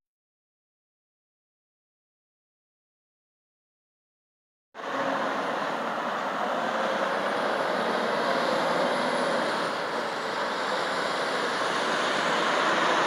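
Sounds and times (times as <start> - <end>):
truck engine and tyre noise: 4.8 - 13.0.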